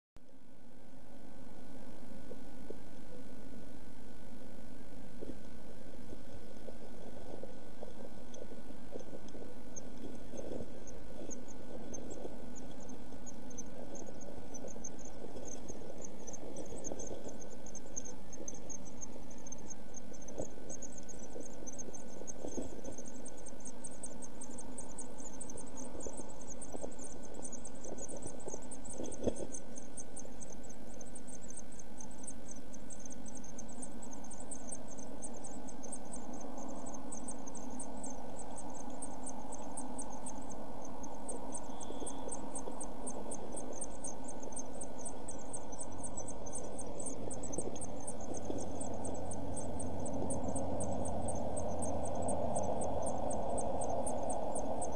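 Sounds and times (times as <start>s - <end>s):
microphone hiss and hum: 0.2s - 54.9s
nestlings cheeping: 9.1s - 54.9s.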